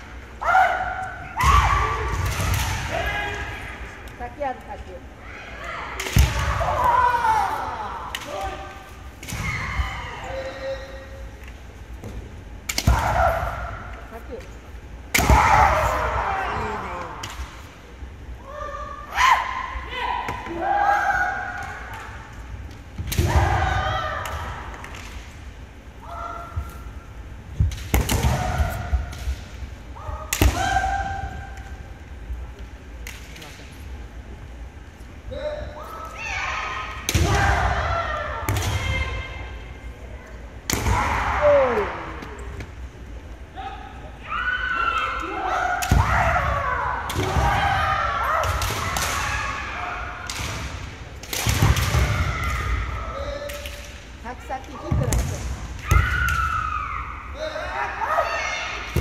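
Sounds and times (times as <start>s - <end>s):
people shouting kiai yells: 0.4s - 3.9s, 5.3s - 11.1s, 12.8s - 13.9s, 15.2s - 17.2s, 18.4s - 22.2s, 23.1s - 24.7s, 30.0s - 31.6s, 35.3s - 39.5s, 40.7s - 42.2s, 43.6s - 50.3s, 55.8s - 59.0s
fighters shouting: 5.6s - 8.8s, 40.8s - 42.2s.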